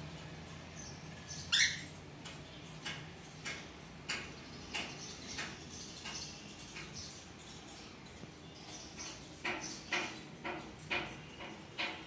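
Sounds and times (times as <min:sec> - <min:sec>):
cockatiels chirping: 0:01.4 - 0:01.9.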